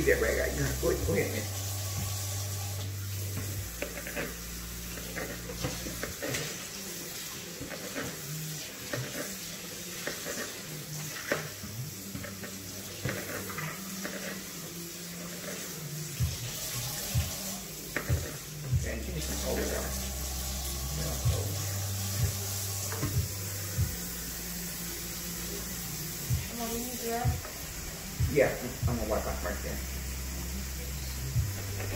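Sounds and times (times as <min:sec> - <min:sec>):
faucet running into metal sink: 0:00.0 - 0:14.6, 0:15.4 - 0:23.3.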